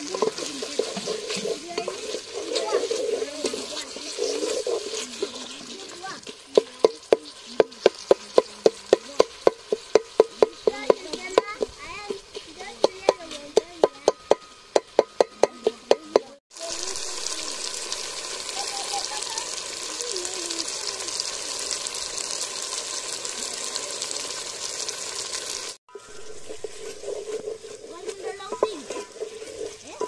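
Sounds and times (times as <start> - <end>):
voices: 0.0 - 9.5, 10.3 - 14.4, 18.5 - 21.7, 27.4 - 30.0
food frying in a pan: 0.0 - 30.0.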